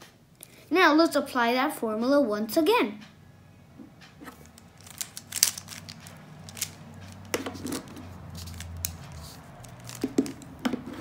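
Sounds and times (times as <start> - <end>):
puzzle cube plastic clicks: 4.4 - 10.5.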